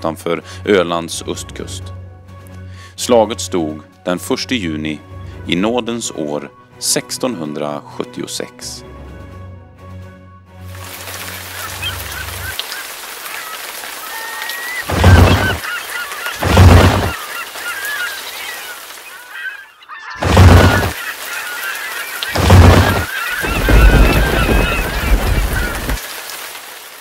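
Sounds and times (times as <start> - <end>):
birds calling: 10.8 - 26.6.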